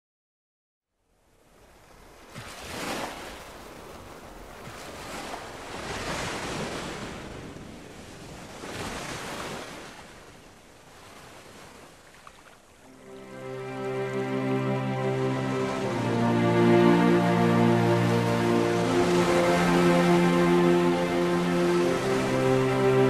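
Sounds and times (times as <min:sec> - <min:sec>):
music: 0:12.9 - 0:23.0.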